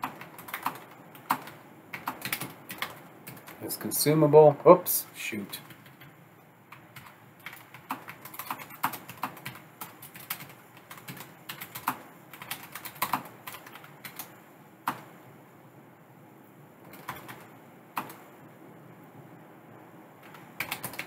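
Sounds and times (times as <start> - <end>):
computer keyboard typing: 0.0 - 3.6, 5.5 - 15.0, 16.9 - 18.2, 20.2 - 21.0.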